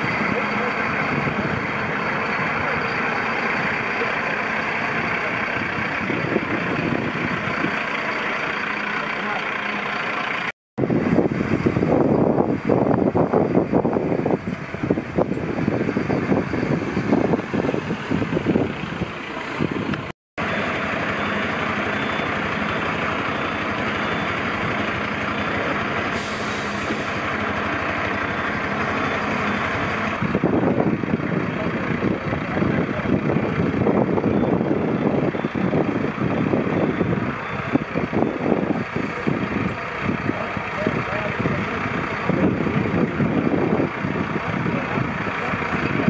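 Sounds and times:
faint high beep: 0.0s - 5.3s, 21.1s - 24.6s
diesel engines rumbling: 0.0s - 46.0s.

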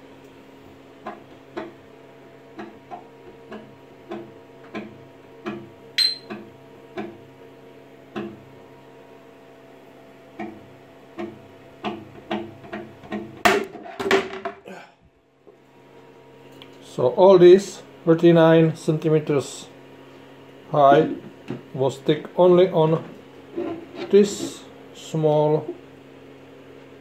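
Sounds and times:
steady low hum: 14.6s - 27.0s.

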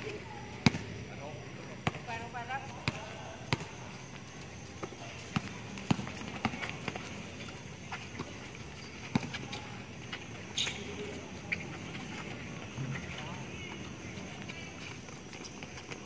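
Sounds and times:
basketball bouncing on hard court: 0.6s - 0.9s, 1.8s - 3.8s, 5.2s - 7.2s, 8.2s - 9.6s
players running on court: 1.7s - 16.0s.

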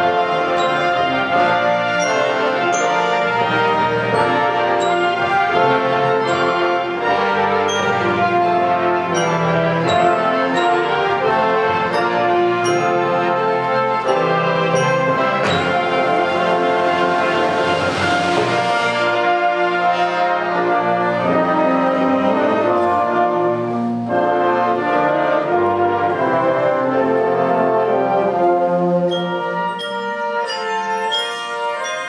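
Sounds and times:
concert band brass chords: 0.0s - 32.0s
high bell-like notes: 29.1s - 32.0s.

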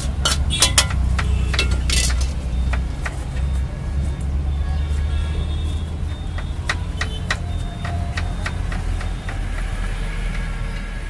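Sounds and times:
forks clinking on plates: 0.2s - 2.4s.

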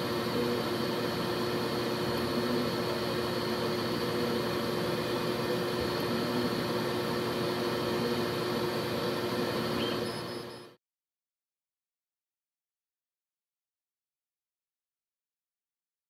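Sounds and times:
laser cutter whirring: 0.0s - 10.8s.

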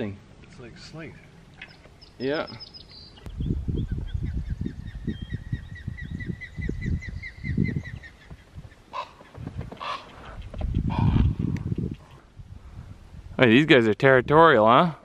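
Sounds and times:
birds chirping: 0.0s - 12.3s
birds squawking: 1.1s - 11.4s.

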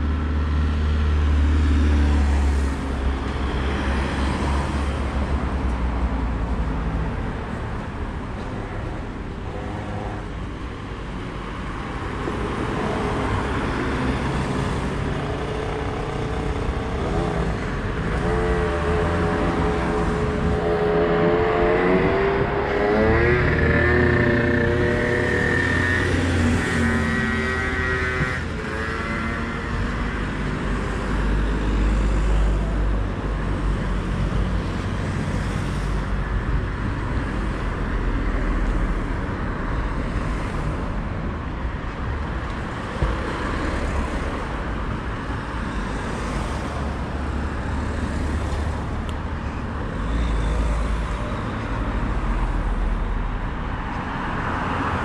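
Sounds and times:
traffic rumble: 0.0s - 55.0s
engine revving up: 18.2s - 29.8s.

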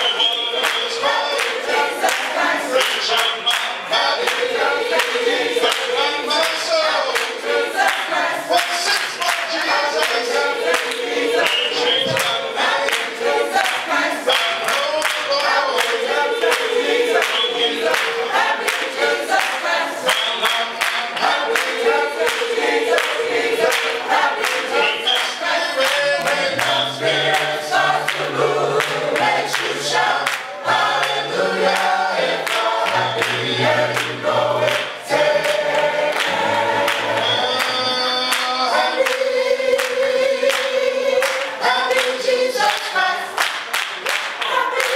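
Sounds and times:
choir singing gospel: 0.0s - 44.9s
hand clapping: 0.0s - 44.9s.

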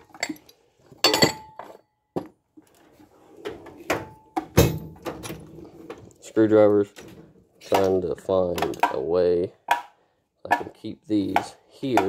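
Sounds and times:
metal tools clinking: 0.0s - 1.8s
drawer thunks: 3.8s - 5.4s.

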